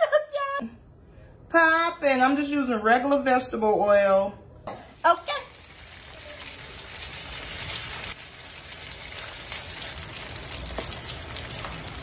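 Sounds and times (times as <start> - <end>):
deep-frying oil sizzling: 4.8 - 12.0.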